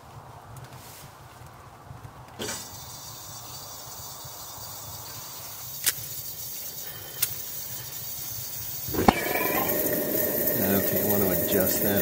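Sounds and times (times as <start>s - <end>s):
camp stove hissing: 2.4s - 12.0s.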